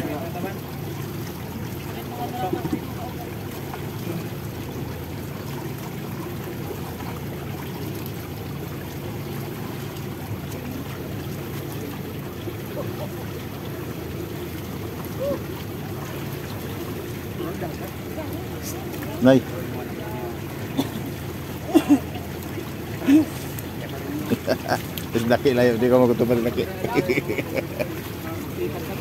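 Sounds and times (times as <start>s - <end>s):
water sloshing and lapping: 0.0s - 29.0s.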